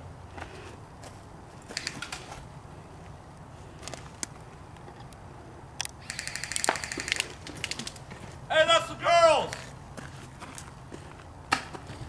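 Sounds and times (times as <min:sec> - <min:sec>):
airsoft rifle automatic fire: 0:01.7 - 0:02.3, 0:06.0 - 0:07.8.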